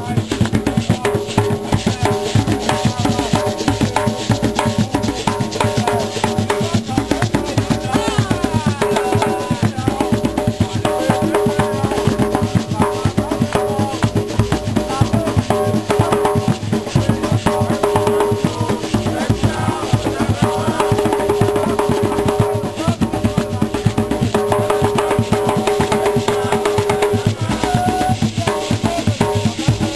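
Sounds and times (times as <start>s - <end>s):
hand drums playing fast rhythm: 0.0s - 29.9s
rattling percussion: 0.0s - 29.9s.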